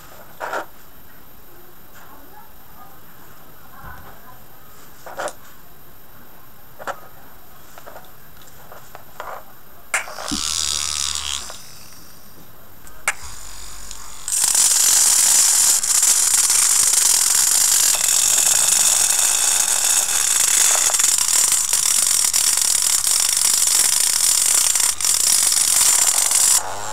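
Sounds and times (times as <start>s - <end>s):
small motor clicking and spinning: 10.0s - 12.1s, 13.1s - 26.9s
drum sander grinding on steel: 10.3s - 11.8s, 13.2s - 26.9s.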